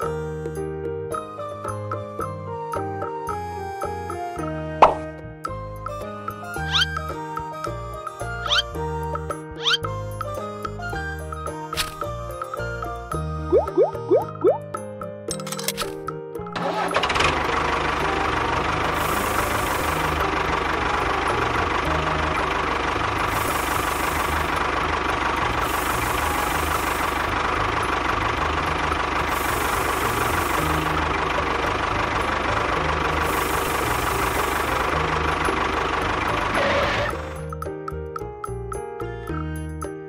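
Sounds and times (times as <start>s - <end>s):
toy tractor engine drone: 6.6s - 7.4s, 8.0s - 9.8s, 16.6s - 37.5s.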